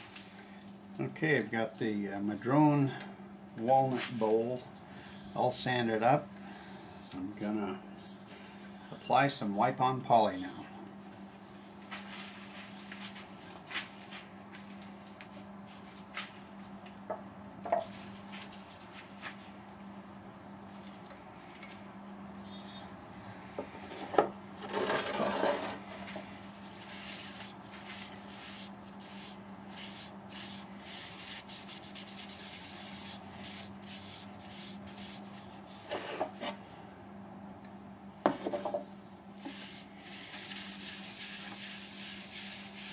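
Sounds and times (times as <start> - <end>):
steady low hum: 0.0 - 42.9
cloth rubbing on wooden bowl: 26.6 - 36.6, 39.5 - 42.9.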